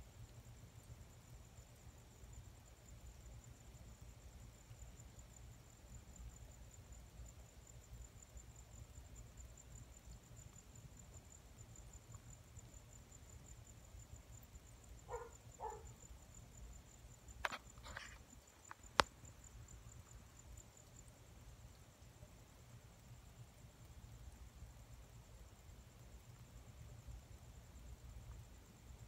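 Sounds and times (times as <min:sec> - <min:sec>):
insect trilling: 0:14.1 - 0:16.2.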